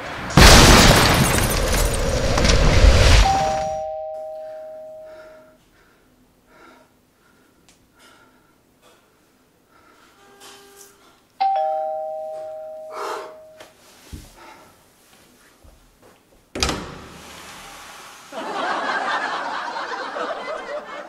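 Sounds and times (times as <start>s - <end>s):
two-tone doorbell chime: 3.2s - 5.5s, 11.4s - 13.6s.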